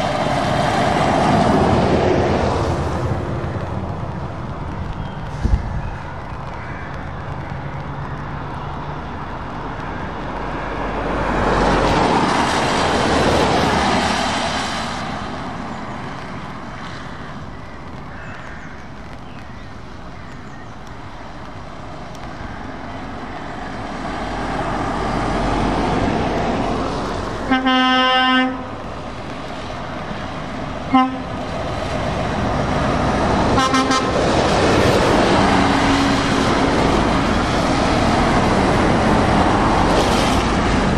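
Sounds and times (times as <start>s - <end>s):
trucks driving past on wet road: 0.0s - 40.9s
vehicle horn blasts: 27.5s - 28.7s, 30.9s - 31.3s, 33.6s - 34.1s.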